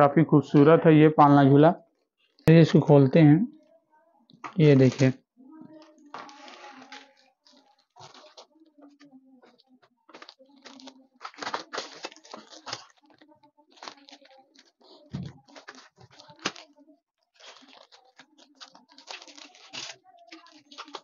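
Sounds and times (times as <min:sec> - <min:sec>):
plastic wrapping crinkling: 0:04.4 - 0:21.0.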